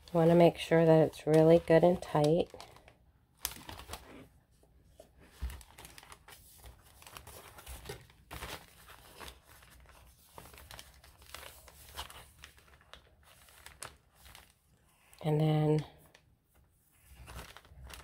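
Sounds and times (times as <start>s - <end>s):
paper pages rustling: 0.0s - 15.2s, 16.0s - 18.0s.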